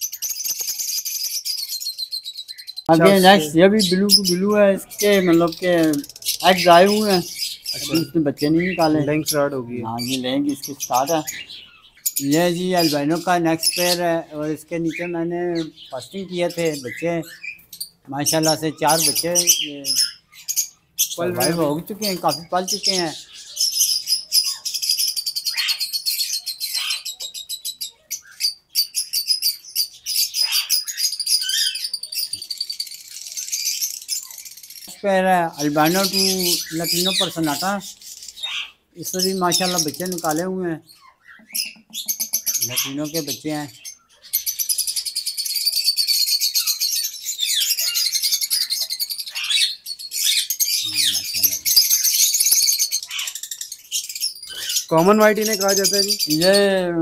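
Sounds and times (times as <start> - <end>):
birds chirping rapidly: 0.0 - 57.0.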